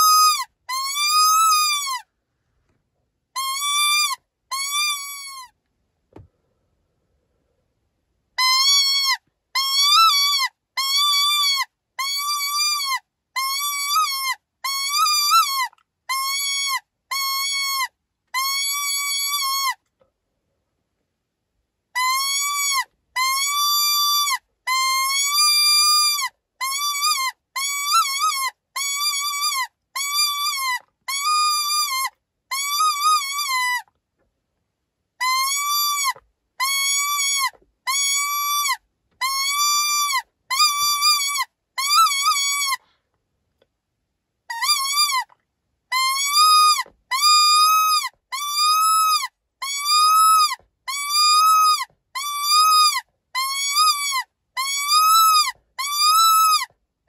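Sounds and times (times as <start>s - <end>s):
high-pitched distress cries: 0.0s - 2.1s, 3.4s - 5.6s, 8.4s - 19.8s, 22.0s - 33.9s, 35.2s - 42.8s, 44.5s - 45.3s, 45.9s - 56.7s.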